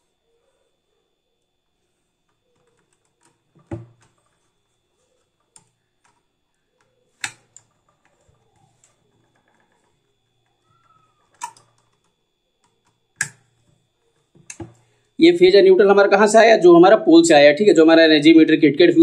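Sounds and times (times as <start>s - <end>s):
screwdriver clicking on terminal block: 7.2s - 7.7s, 11.3s - 13.5s.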